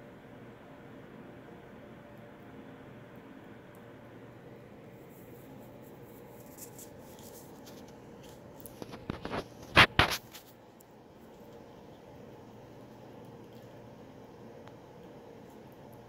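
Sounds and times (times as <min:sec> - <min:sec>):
wet clicks and scratches: 0:05.2 - 0:12.4.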